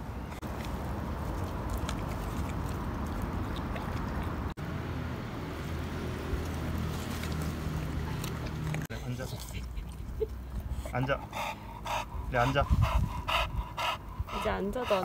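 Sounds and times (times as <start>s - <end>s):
dog chewing crunchy food: 0.4s - 4.5s, 6.3s - 8.9s.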